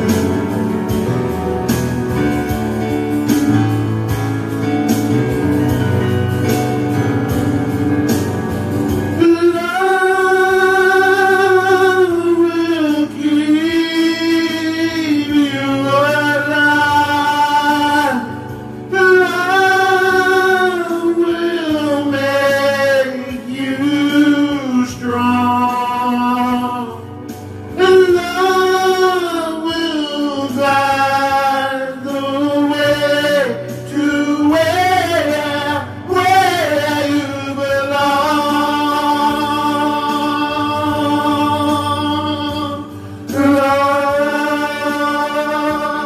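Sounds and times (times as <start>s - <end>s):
man singing long notes: 8.9s - 46.0s.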